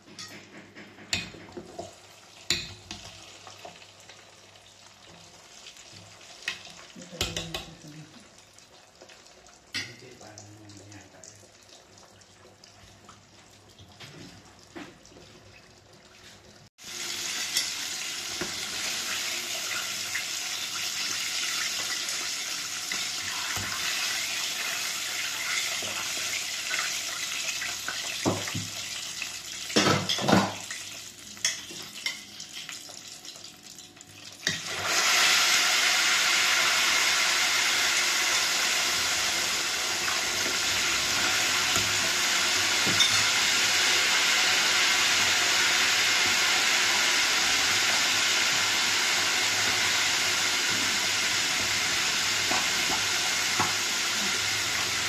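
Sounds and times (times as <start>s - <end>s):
oil sizzling hard: 16.2s - 33.0s, 34.2s - 55.0s.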